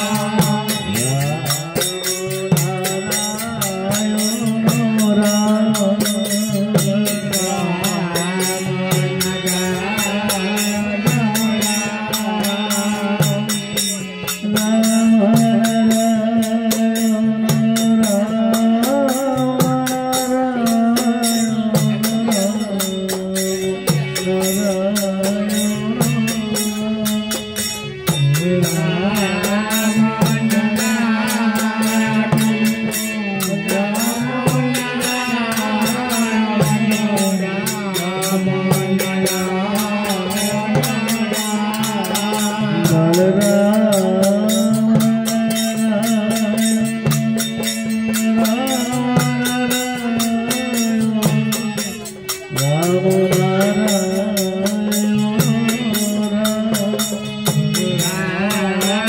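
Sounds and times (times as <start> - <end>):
hand drum beat: 0.0 - 59.0
harmonium chords: 0.0 - 59.0.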